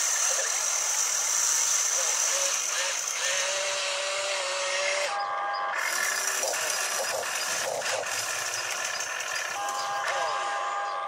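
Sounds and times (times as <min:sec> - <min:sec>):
electric motor and pump whining: 0:00.0 - 0:11.0.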